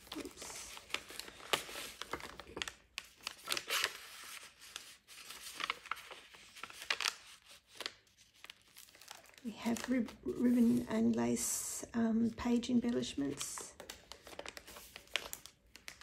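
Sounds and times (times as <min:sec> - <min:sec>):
paper crackles: 0:00.0 - 0:11.2, 0:12.4 - 0:16.0
thick paper rustling and scraping: 0:00.0 - 0:11.2.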